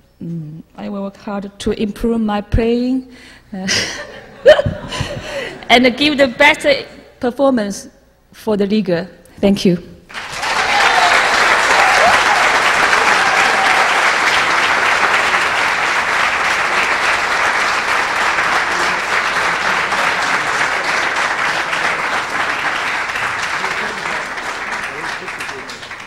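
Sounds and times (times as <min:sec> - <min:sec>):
audience applauding: 0:10.1 - 0:26.0.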